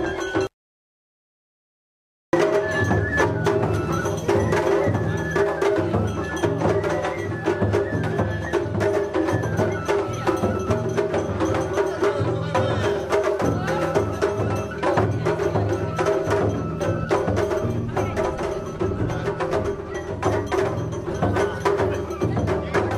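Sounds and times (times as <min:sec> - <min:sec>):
high held flute notes: 0:02.4 - 0:11.0
drums beating steady rhythm: 0:02.4 - 0:22.9.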